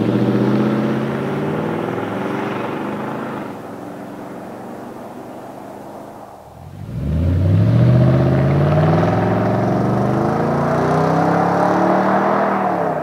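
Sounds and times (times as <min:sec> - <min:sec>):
engine accelerating through exhaust: 0:00.0 - 0:03.6, 0:06.6 - 0:13.0.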